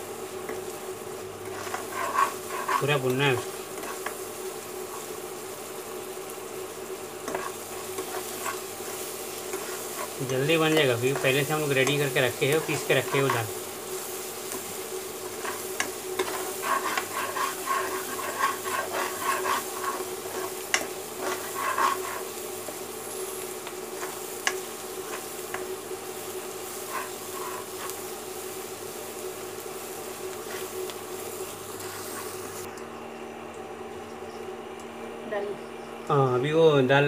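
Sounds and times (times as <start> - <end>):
spice masala sizzling in oil: 0.0 - 32.7
steady hum: 0.0 - 37.0
metal spoon scraping pan: 1.4 - 3.1, 7.2 - 13.4, 15.2 - 22.3.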